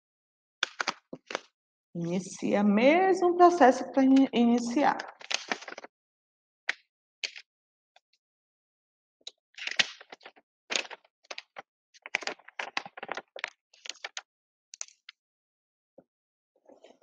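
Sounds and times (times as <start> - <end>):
paper crackling and rustling: 0.6 - 1.5, 4.1 - 5.9, 9.3 - 14.2.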